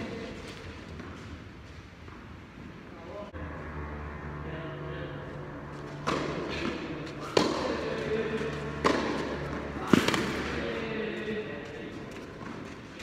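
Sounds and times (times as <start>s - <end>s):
low hum: 3.3s - 11.6s
tennis ball knocks: 6.0s - 7.8s.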